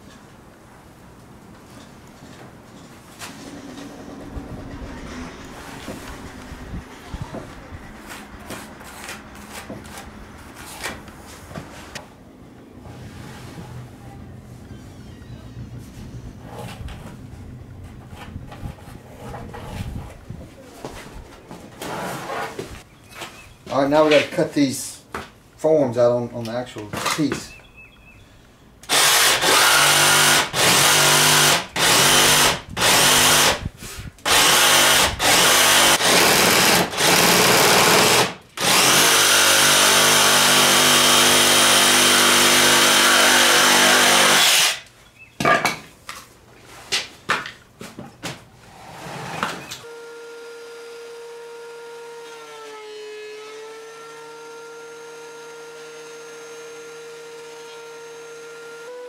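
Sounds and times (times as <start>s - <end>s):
jigsaw cutting wood: 28.8s - 33.6s, 34.3s - 44.8s, 49.8s - 59.0s.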